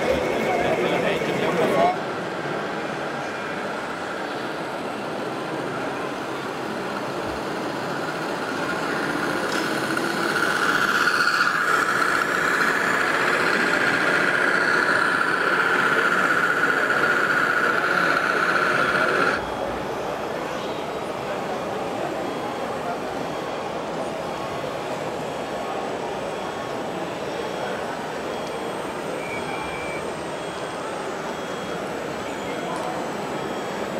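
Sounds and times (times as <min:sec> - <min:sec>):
din of busy hall: 0:00.0 - 0:33.9
electric toy truck motor whine: 0:06.1 - 0:19.6.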